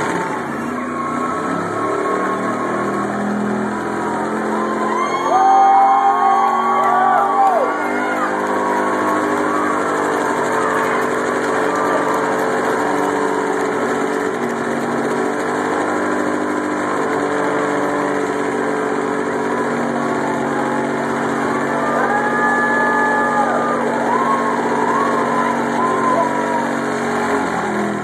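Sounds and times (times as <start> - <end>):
car engine revving high: 0.0 - 28.0
tyres spinning: 0.0 - 28.0.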